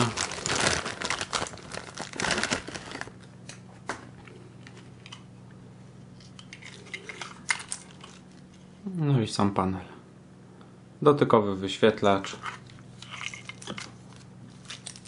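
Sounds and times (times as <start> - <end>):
plastic bag crinkling: 0.0 - 3.2, 13.2 - 15.0.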